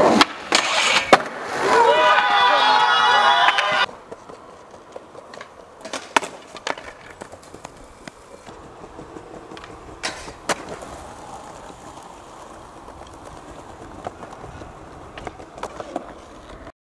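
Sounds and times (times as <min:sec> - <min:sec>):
skateboard clacks: 0:00.0 - 0:01.4, 0:03.4 - 0:16.7
skateboard wheels rolling on concrete: 0:00.0 - 0:16.7.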